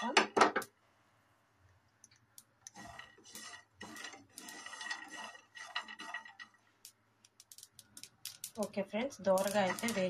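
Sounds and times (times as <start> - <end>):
seeds popping in pan: 2.1 - 10.0
spatula scraping seeds in pan: 2.7 - 6.9, 8.4 - 10.0.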